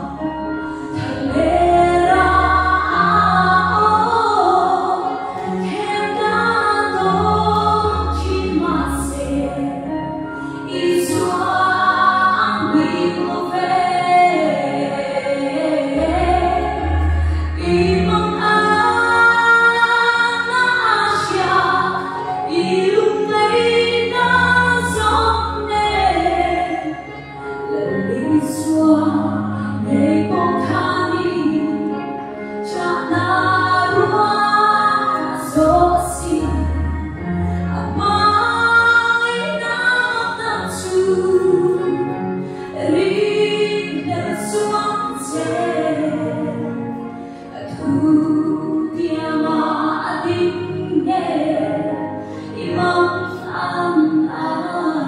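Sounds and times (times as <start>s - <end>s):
woman singing into a microphone: 0.0s - 55.0s
sustained low bass notes: 10.8s - 19.7s.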